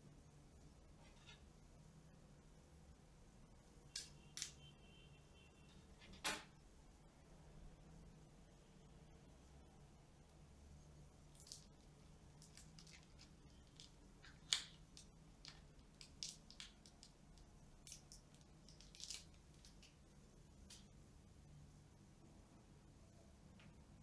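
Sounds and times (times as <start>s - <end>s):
plastic film crinkling: 11.3s - 20.0s.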